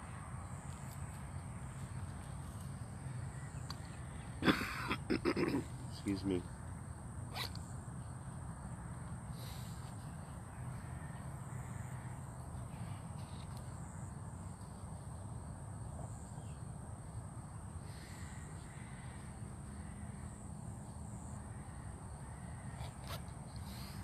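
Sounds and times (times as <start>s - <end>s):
crows cawing: 10.5s - 12.3s, 17.9s - 20.4s, 21.4s - 23.1s.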